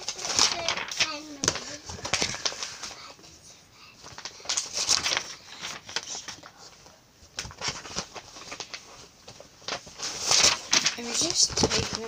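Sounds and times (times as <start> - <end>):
paper rustling and crinkling: 0.0 - 12.0.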